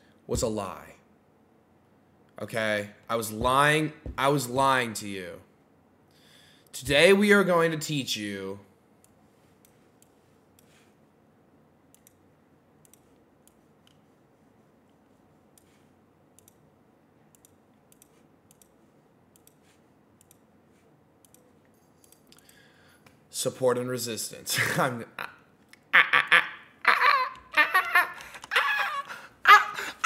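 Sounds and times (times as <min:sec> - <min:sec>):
faint computer mouse clicks: 0:11.9 - 0:12.2, 0:16.4 - 0:16.6, 0:17.3 - 0:20.4, 0:21.2 - 0:23.2.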